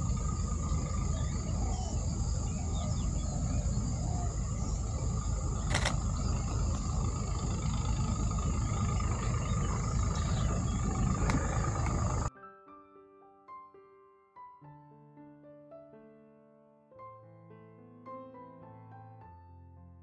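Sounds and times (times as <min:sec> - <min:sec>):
faint bird chirps: 0:00.0 - 0:12.3
insects droning: 0:00.0 - 0:12.3
low rumble: 0:00.0 - 0:12.3
sharp click: 0:05.7 - 0:06.0.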